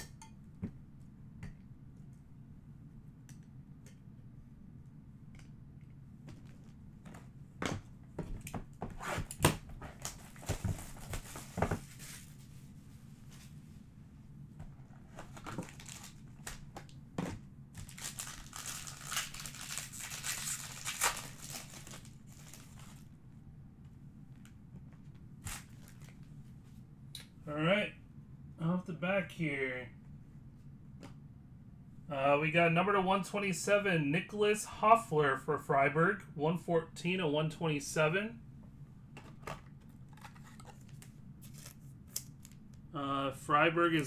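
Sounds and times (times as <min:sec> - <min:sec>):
packaging crinkling and tearing: 0:15.1 - 0:16.8, 0:17.8 - 0:23.0, 0:25.4 - 0:26.3.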